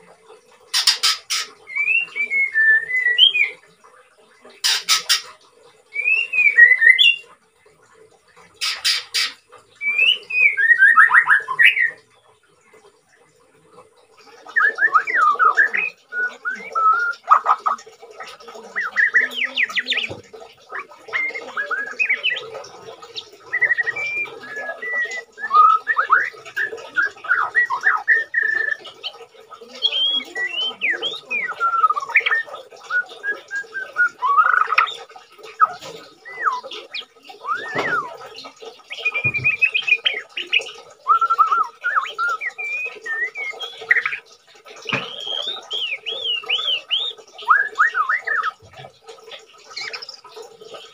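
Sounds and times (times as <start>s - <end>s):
bird singing whistled phrases and trills: 0.7s - 3.8s, 5.9s - 7.3s, 8.6s - 12.2s, 14.2s - 50.9s.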